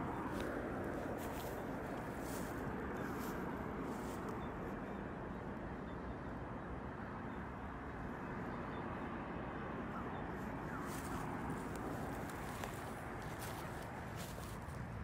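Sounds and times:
footsteps through undergrowth: 0.0 - 4.4, 10.4 - 15.0
vegetation crackling: 10.9 - 14.8.

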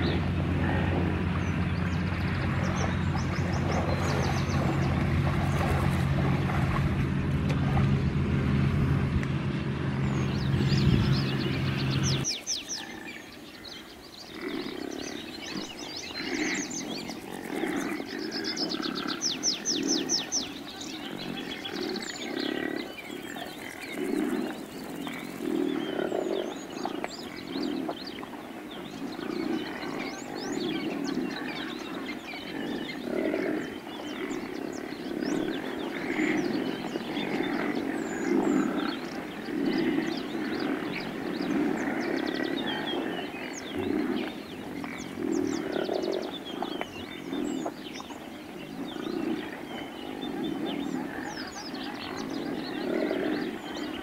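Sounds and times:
low animal grunts and bellows: 0.0 - 8.9, 50.8 - 54.0
birds chirping: 0.0 - 54.0.

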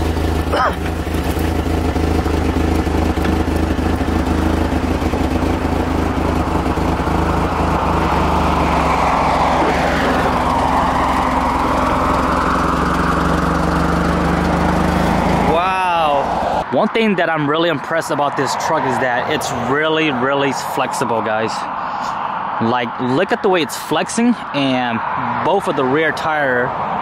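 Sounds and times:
truck engine idling: 0.0 - 16.7.

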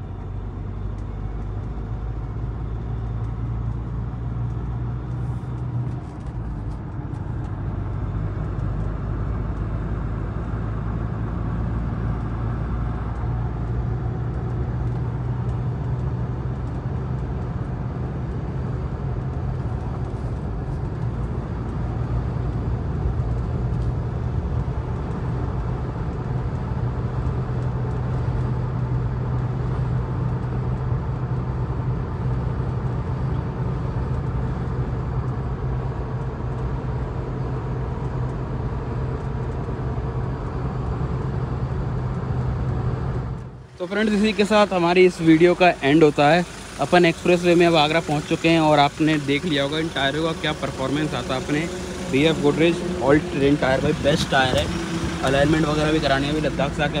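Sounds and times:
diesel engine drone: 0.0 - 57.0
road and tyre rumble: 0.0 - 57.0.

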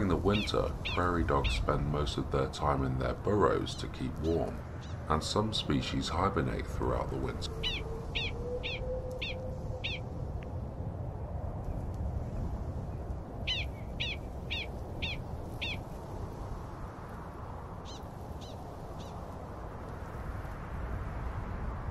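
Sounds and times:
steady low rumble: 0.0 - 21.9
prairie dog barking: 7.5 - 10.0.

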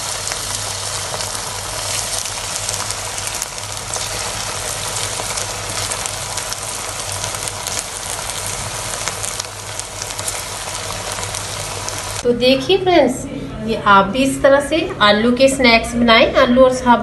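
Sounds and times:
food deep-frying in oil: 0.0 - 12.2.

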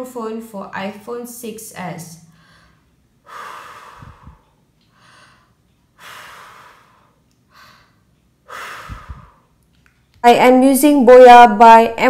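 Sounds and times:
breath blown into microphone: 3.2 - 9.6
low wind rumble: 3.8 - 4.5, 8.5 - 9.5.

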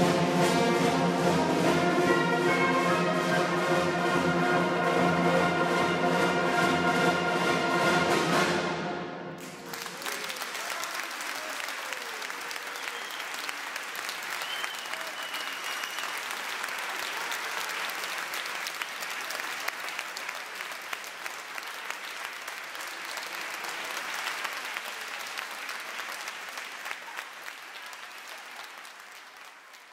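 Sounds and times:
audience applause: 9.4 - 29.9.

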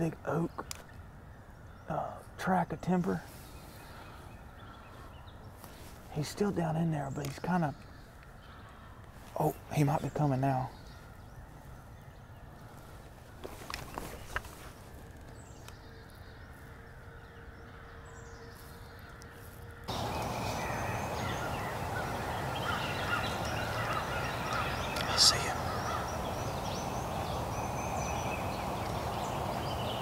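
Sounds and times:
songbirds calling: 0.0 - 30.0
turkey gobbling: 19.9 - 27.2.

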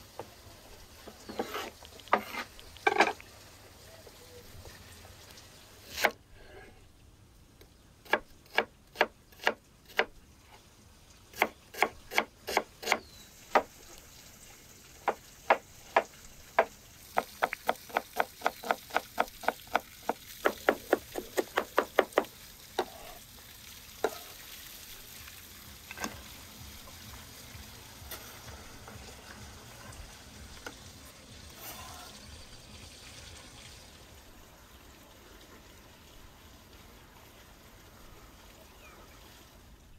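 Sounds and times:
knife chopping on wooden board: 8.1 - 10.1, 11.4 - 13.7, 15.1 - 23.0.

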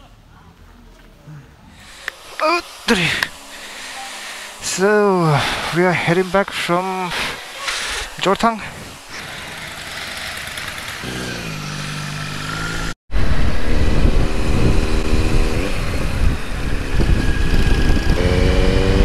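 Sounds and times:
motorcycle engine running: 8.6 - 19.0
wind rush on microphone: 13.1 - 19.0.

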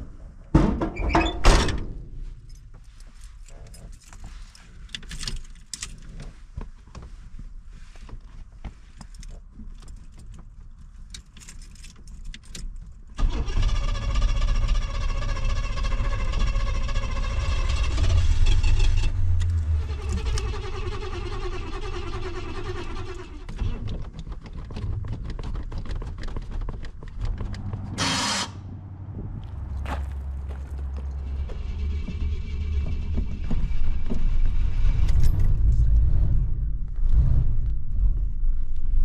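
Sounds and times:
starter motor cranking engine: 13.2 - 23.9
short sharp burst of noise: 27.9 - 28.7.

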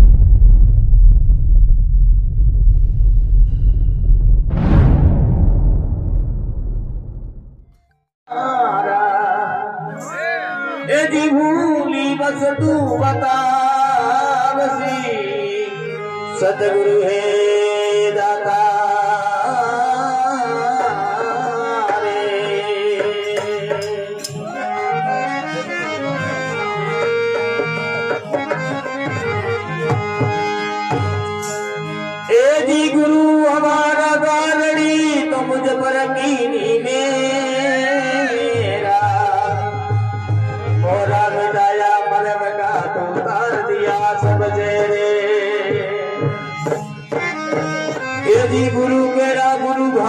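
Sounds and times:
harmonium melody: 8.3 - 50.0
dholak drum rhythm: 19.6 - 24.7, 26.7 - 33.0, 38.4 - 49.9.

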